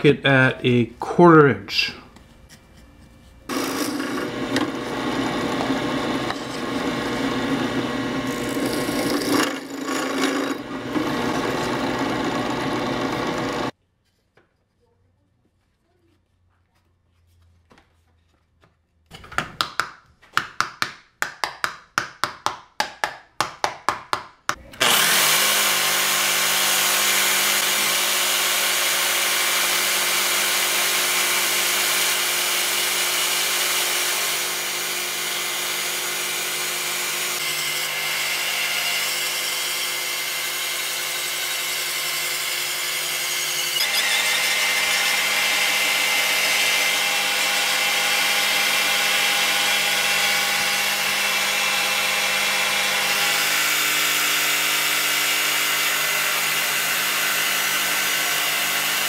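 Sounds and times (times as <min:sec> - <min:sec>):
cordless drill running: 0:03.5 - 0:13.7, 0:24.7 - 0:38.5, 0:42.5 - 0:59.0
jigsaw running: 0:03.5 - 0:13.8, 0:24.7 - 0:59.0.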